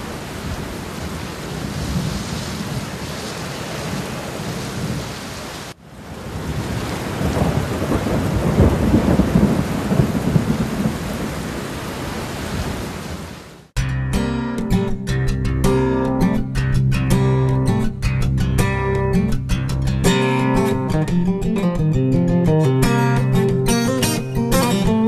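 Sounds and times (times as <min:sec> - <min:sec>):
waterfall roaring: 0:00.0 - 0:13.7.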